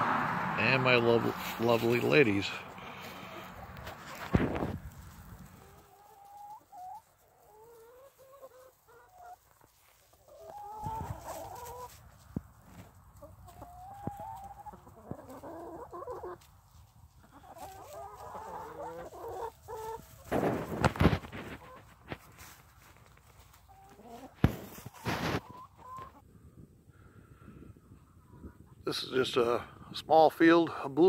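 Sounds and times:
hens clucking: 0.0s - 26.3s, 27.8s - 29.6s
rustling bump near microphone: 3.9s - 5.4s, 20.2s - 23.4s.

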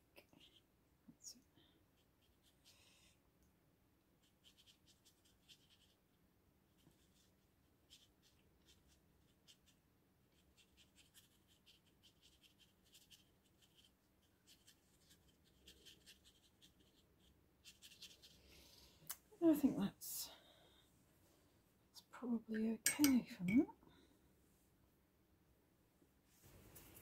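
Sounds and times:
brush scratching on paper: 2.0s - 2.7s, 4.2s - 6.0s, 6.7s - 18.4s.

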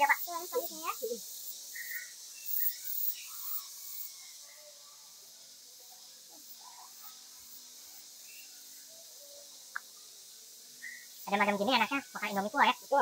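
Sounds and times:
faint small chirps: 0.0s - 5.1s, 10.8s - 11.4s
steady high hiss: 0.0s - 13.0s.

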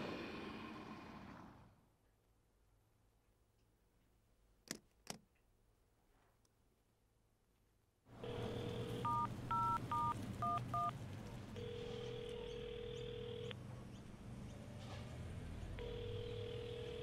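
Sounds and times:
low background hum: 8.1s - 17.0s
dial tone: 8.2s - 10.9s, 11.6s - 13.5s, 15.8s - 17.0s
keypad touch-tone beeps: 9.0s - 10.9s.

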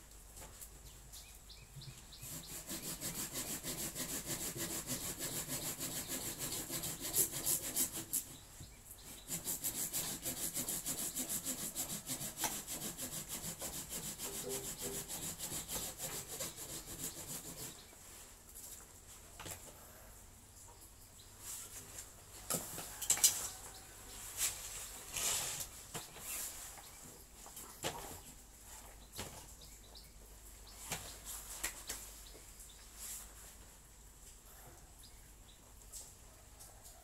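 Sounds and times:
hand saw cutting branch: 2.2s - 8.3s, 9.1s - 17.8s.

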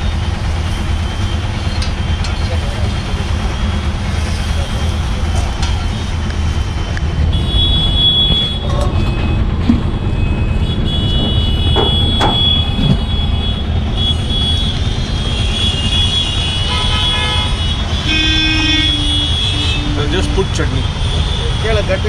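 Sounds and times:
street traffic: 0.0s - 22.0s
low horn honking: 6.0s - 22.0s
vehicle horns: 7.2s - 22.0s.

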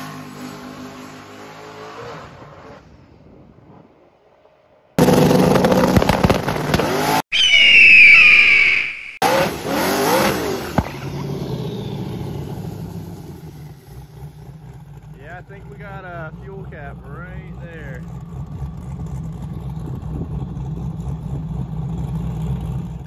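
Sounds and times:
car engine revving: 5.0s - 7.2s, 9.2s - 23.0s
shrill high squealing whistle: 7.3s - 9.2s.

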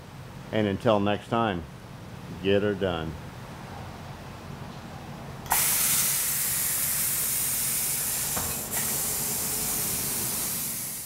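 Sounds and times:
loud gas hiss: 5.5s - 11.0s.

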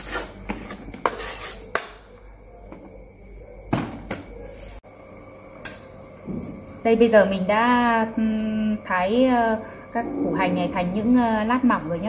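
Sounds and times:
knife scraping cutting board: 0.0s - 1.9s.

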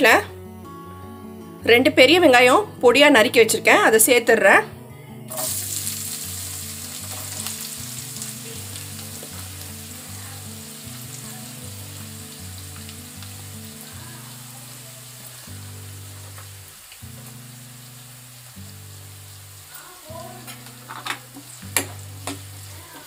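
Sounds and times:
soft background music: 0.0s - 23.0s
onions sizzling in hot oil: 5.3s - 23.0s.

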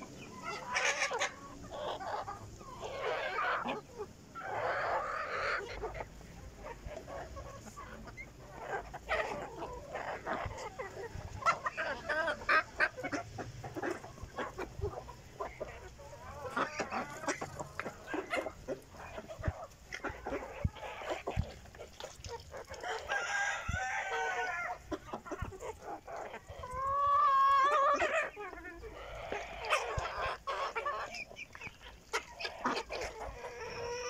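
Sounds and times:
chickens clucking: 0.0s - 34.0s
rooster crowing: 22.8s - 24.8s.

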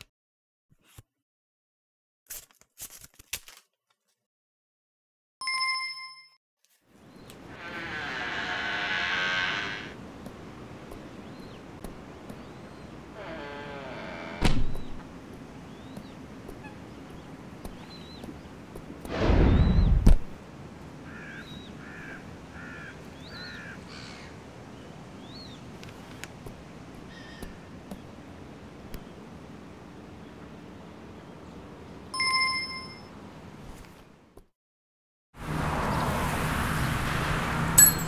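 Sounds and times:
birds chirping: 7.0s - 20.0s, 21.0s - 26.3s
door creaking open: 7.4s - 10.0s, 13.1s - 15.1s
door shutting with a thunk: 14.3s - 15.0s.

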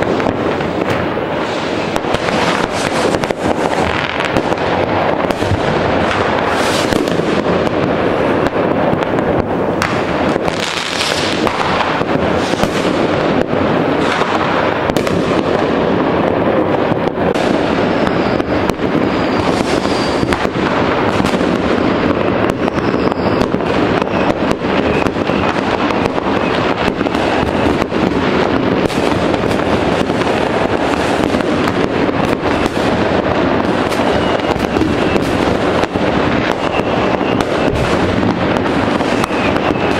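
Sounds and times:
fireworks crackling and banging: 0.0s - 39.9s
faint firework whistles: 1.4s - 4.6s, 5.2s - 7.4s, 9.8s - 13.0s, 14.0s - 14.4s, 17.3s - 39.9s.

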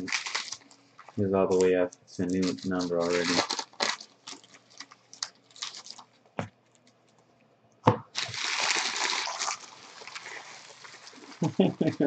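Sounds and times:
wrappers crinkling: 0.0s - 7.2s, 8.1s - 12.0s
knock on table: 7.8s - 8.0s.

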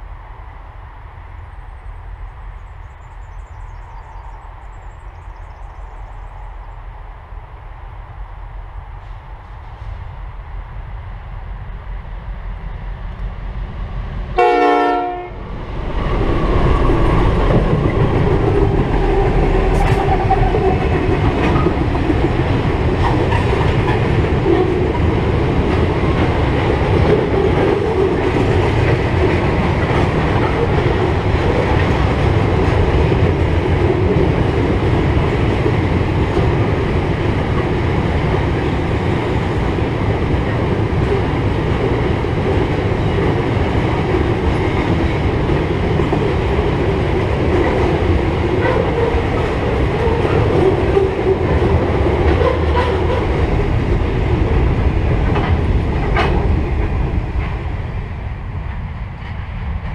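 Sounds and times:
train rumble: 0.0s - 59.9s
train horn blast: 14.4s - 15.4s, 52.4s - 53.2s
wheels clacking over rails: 15.9s - 57.7s.

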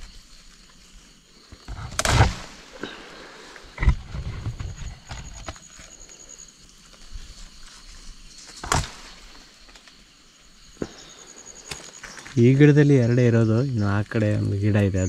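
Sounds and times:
insect trilling: 0.0s - 15.0s
leaves rustling: 0.0s - 15.0s
stem snapping: 1.9s - 2.5s, 8.6s - 10.0s.

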